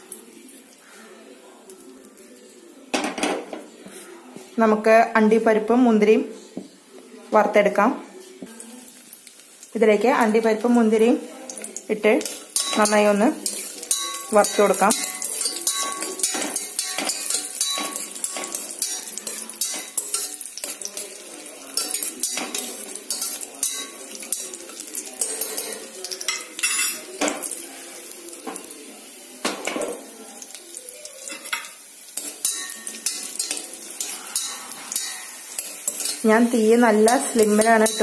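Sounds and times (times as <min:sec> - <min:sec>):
nuts frying and sizzling in ghee: 0:08.2 - 0:38.0
spoon clinking against pot: 0:12.2 - 0:27.5, 0:31.3 - 0:36.2, 0:37.1 - 0:38.0.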